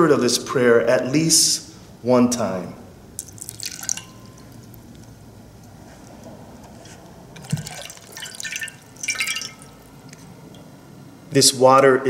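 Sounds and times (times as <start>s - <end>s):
water splashing into a bowl: 3.2s - 4.8s, 7.4s - 9.9s.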